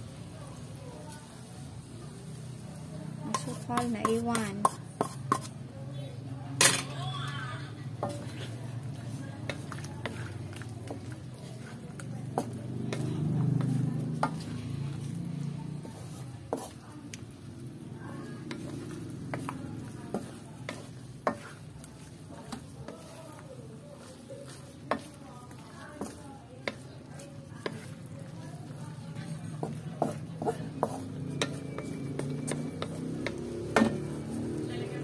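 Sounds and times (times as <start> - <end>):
spatula stirring food in wok: 0.0 - 6.8, 7.7 - 35.0
sauce sizzling: 0.6 - 5.3, 7.7 - 35.0
spatula knocking on wok: 3.3 - 5.5, 27.6 - 34.3.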